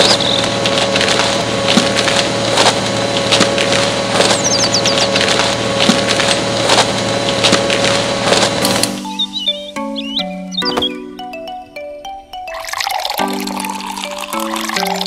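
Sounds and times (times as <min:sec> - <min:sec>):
sharp cracking and snapping: 0:00.0 - 0:09.0.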